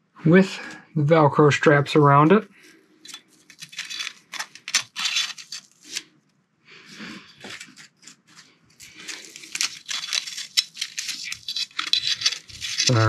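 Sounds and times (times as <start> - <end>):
velcro straps tearing: 3.4 - 6.1, 7.6 - 13.0.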